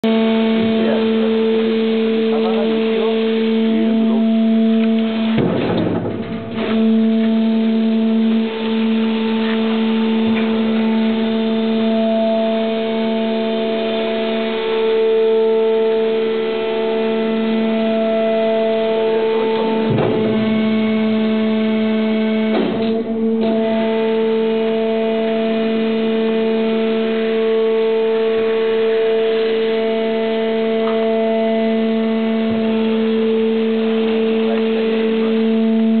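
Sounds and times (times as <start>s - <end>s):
hydraulic unit humming: 0.0s - 36.0s
machine clunks: 2.4s - 11.2s, 17.7s - 24.2s.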